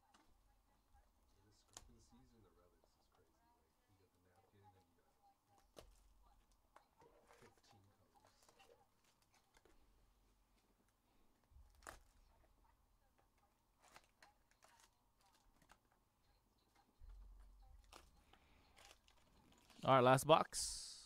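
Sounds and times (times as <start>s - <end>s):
foil packs crinkling and tapping: 13.8s - 15.9s, 17.0s - 19.9s.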